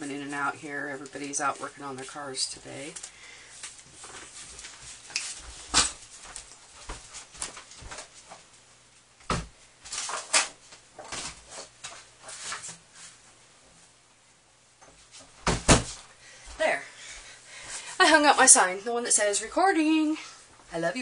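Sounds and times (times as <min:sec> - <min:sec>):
rustling: 0:00.9 - 0:14.0.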